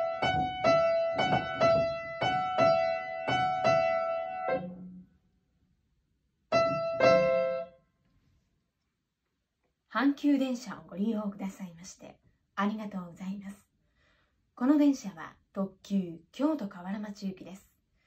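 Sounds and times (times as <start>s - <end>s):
upright piano melody: 0.0s - 5.1s, 6.5s - 7.8s.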